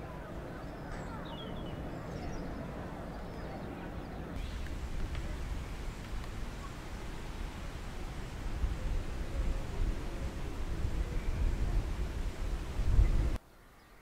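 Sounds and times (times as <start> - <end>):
small birds chirping: 0.0 - 7.6
wind rumble on microphone: 0.0 - 13.4.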